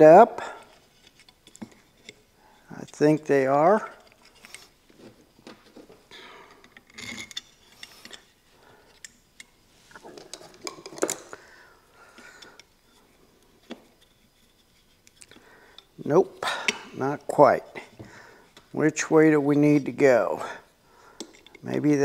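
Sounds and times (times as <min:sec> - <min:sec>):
metal clinks and scrapes: 0:00.4 - 0:05.1, 0:06.1 - 0:09.2.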